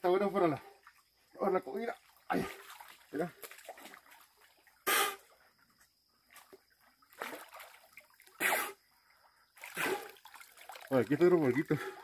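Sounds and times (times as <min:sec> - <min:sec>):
faint water lapping: 0:00.2 - 0:12.0
person blowing through snorkel: 0:04.8 - 0:05.2.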